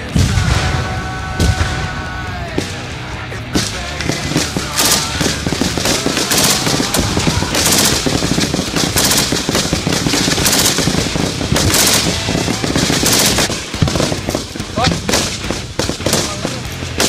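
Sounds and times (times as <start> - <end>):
machine gun firing bursts: 3.6 - 17.0.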